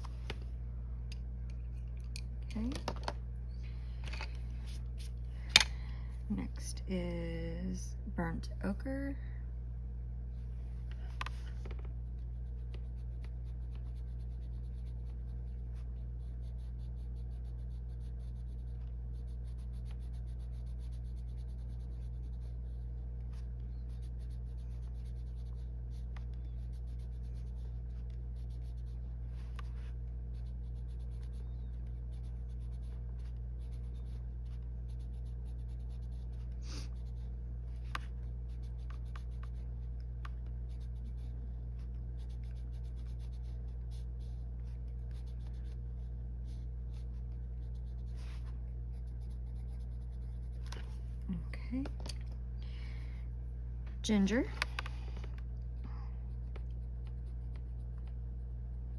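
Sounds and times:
steady low hum: 0.0s - 58.9s
pencil scratching on paper: 12.0s - 51.0s, 56.8s - 58.0s.

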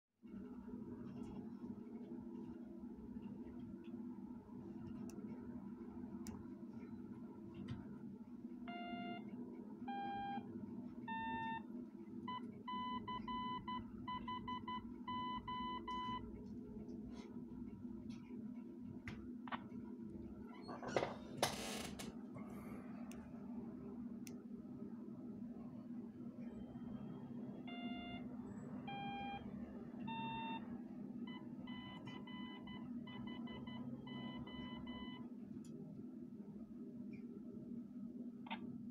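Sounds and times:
morse code beeps: 8.7s - 9.2s, 9.9s - 10.4s, 11.1s - 11.6s, 12.3s - 16.2s, 27.7s - 28.3s, 28.9s - 29.4s, 30.1s - 30.6s, 31.3s - 35.2s
morse code tone: 8.7s - 9.2s, 9.9s - 10.4s, 12.3s - 16.2s, 28.9s - 29.4s.

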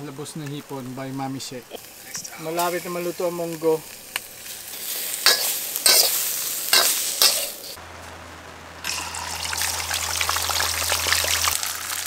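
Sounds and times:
shrimp sizzling: 0.0s - 7.8s, 8.8s - 12.0s
metal ladle scraping wok: 4.3s - 7.8s
fish frying in hot oil: 8.8s - 12.0s.

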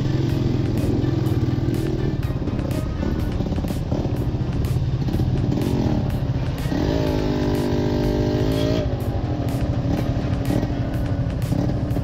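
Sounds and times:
motorcycle engine revving: 0.0s - 12.0s
motorcycle engines running: 0.0s - 12.0s.

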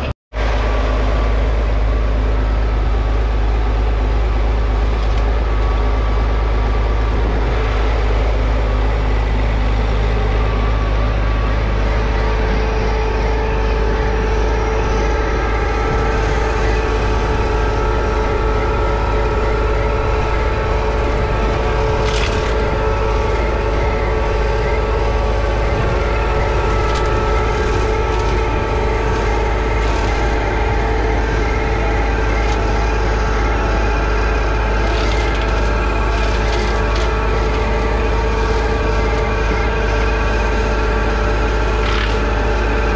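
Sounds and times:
steady whine: 0.0s - 42.9s
tractor diesel engine under load: 0.0s - 42.9s
sharp cracks of hedge cutting: 22.0s - 23.7s, 26.6s - 32.8s, 34.6s - 39.4s, 41.8s - 42.4s.

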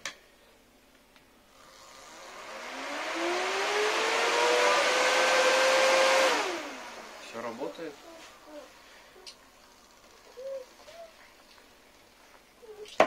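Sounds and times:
electric blower fan whining: 1.5s - 11.6s.

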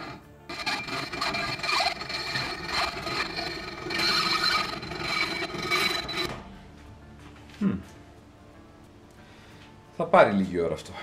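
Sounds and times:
hacksaw cutting metal: 0.0s - 6.4s.

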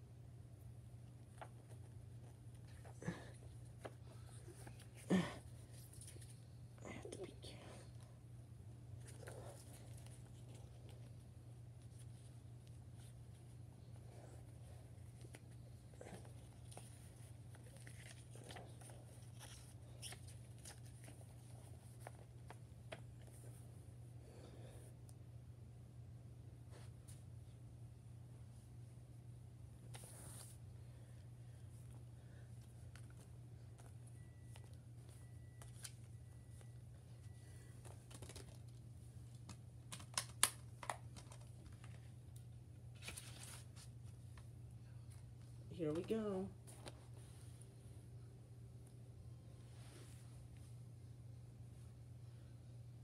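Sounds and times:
steady low hum: 0.0s - 53.0s
paper pamphlet rustling: 15.0s - 23.4s, 37.4s - 38.8s, 42.9s - 44.2s.

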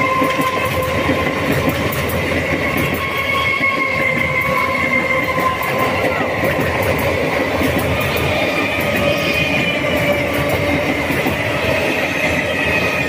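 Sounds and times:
high train whine: 0.0s - 13.0s
train wheels rumbling on rails: 0.0s - 13.0s.

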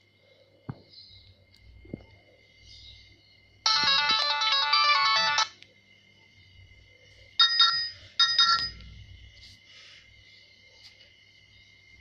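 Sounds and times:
polyphonic ringtone melody: 3.6s - 5.6s, 7.4s - 8.8s.

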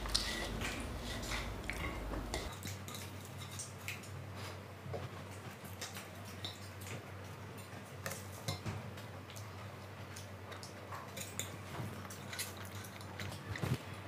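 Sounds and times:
faint low hum: 0.0s - 2.5s
fork scraping metal plate: 0.0s - 2.5s.

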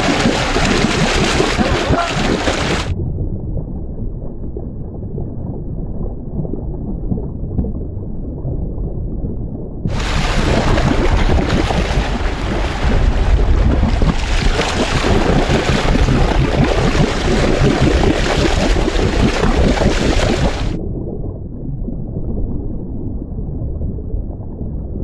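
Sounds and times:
sea water splashing at boat: 0.0s - 2.9s, 9.9s - 20.8s
muffled underwater sound: 0.0s - 25.0s
wind noise on microphone: 0.0s - 25.0s.

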